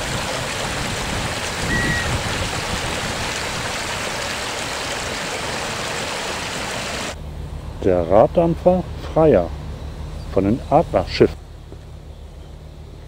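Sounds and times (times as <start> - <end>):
stream rushing over stones: 0.0 - 7.2.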